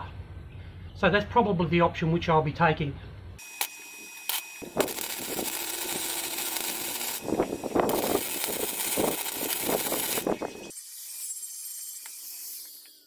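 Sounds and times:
welder arc crackling and hissing: 0:03.4 - 0:13.0.

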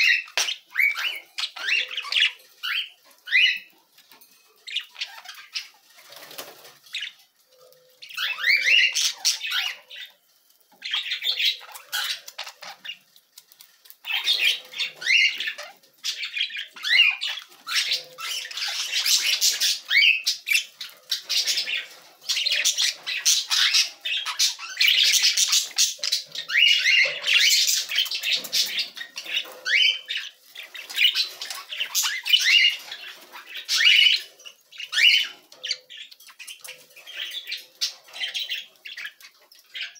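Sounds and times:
budgerigars chirping and warbling: 0:00.0 - 0:39.9.

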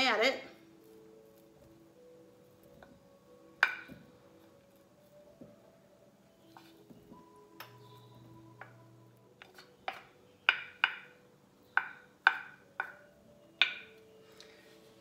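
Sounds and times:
wooden spatula knocking on plate: 0:03.6 - 0:04.1, 0:09.8 - 0:11.1, 0:11.8 - 0:13.0, 0:13.6 - 0:13.9.

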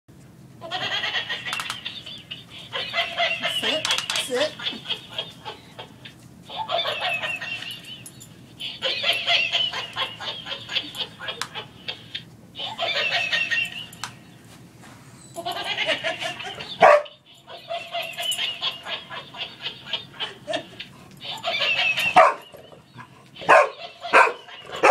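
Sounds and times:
toy monkey electronic laugh: 0:00.6 - 0:14.0, 0:15.4 - 0:24.9
dog barking: 0:16.8 - 0:17.1, 0:22.2 - 0:22.5, 0:23.4 - 0:24.9.

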